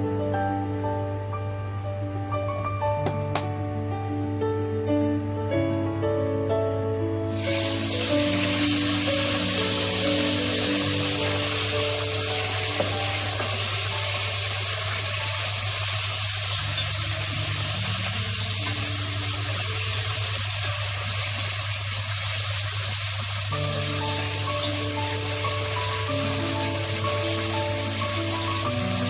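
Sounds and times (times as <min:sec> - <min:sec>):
background music: 0:00.0 - 0:22.0, 0:23.5 - 0:29.0
pork sizzling in hot oil: 0:07.3 - 0:29.0.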